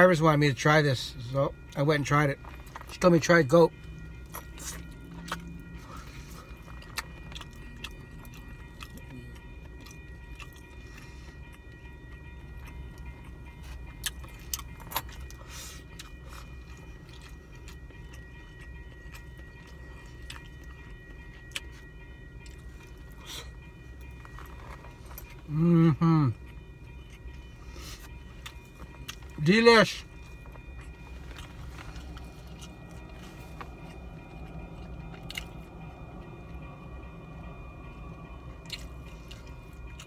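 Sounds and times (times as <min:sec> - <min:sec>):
low hum inside car: 0:00.0 - 0:40.0
chewing: 0:04.2 - 0:09.1, 0:13.7 - 0:21.8, 0:30.8 - 0:35.6.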